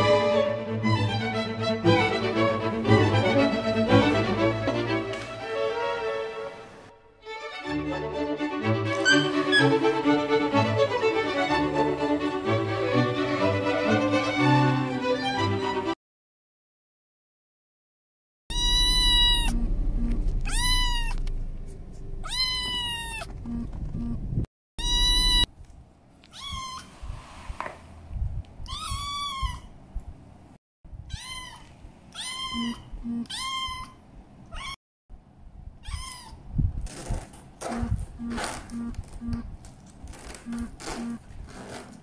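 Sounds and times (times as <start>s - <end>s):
kitten meowing: 18.5s - 19.6s, 20.4s - 21.3s, 22.2s - 23.3s, 24.8s - 25.5s, 26.2s - 26.9s, 28.6s - 29.7s, 31.1s - 34.8s, 35.8s - 36.4s.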